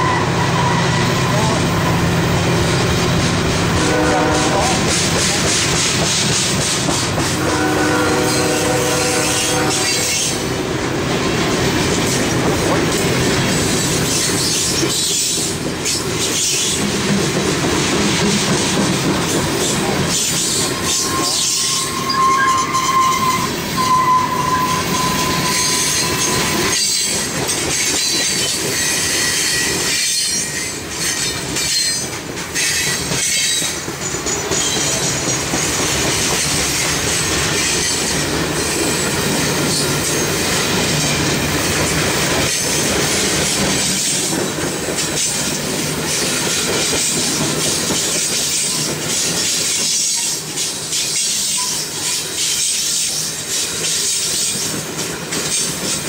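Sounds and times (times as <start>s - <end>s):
steel wheel squeal: 0.0s - 1.6s, 19.6s - 41.2s, 47.0s - 54.8s
freight train rolling past: 0.0s - 56.0s.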